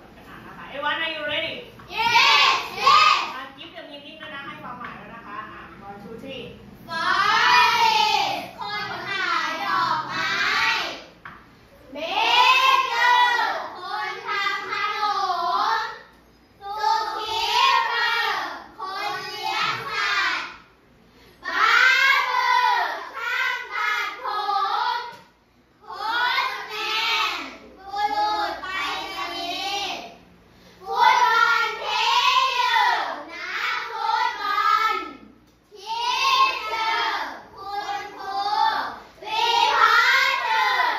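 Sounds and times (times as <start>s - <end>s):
children chanting in unison: 1.9s - 3.3s, 6.9s - 11.1s, 12.0s - 16.0s, 16.6s - 20.7s, 21.4s - 25.2s, 25.8s - 40.9s
children singing in unison: 16.6s - 20.4s, 35.8s - 40.9s.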